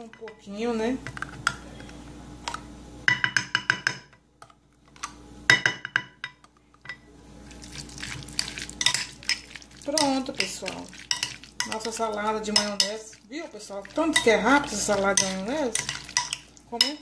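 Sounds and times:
metal spoon clinking on glass: 11.1s - 11.9s, 14.1s - 17.0s.

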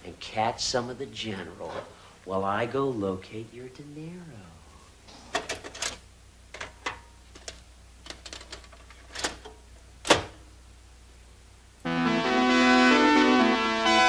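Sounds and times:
video recorder clicks and clunks: 6.6s - 10.4s.

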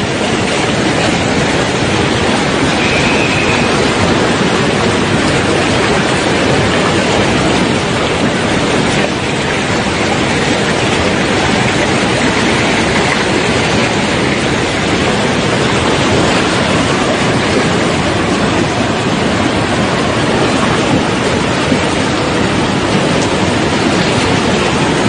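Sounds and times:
floodwater rushing: 0.0s - 25.0s.

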